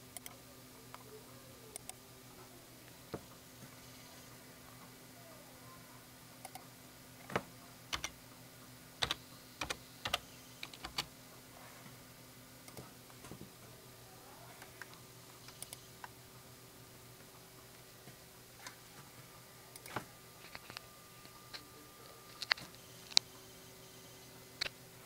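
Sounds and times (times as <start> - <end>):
faint steady hum: 0.0 - 25.0
keyboard key clicks: 9.0 - 11.1.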